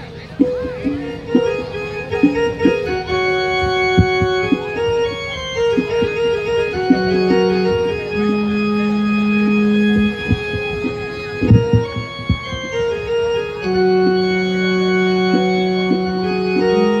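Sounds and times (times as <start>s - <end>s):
electronic organ held notes: 0.0s - 17.0s
short drum strikes: 0.4s - 6.2s, 9.9s - 12.9s.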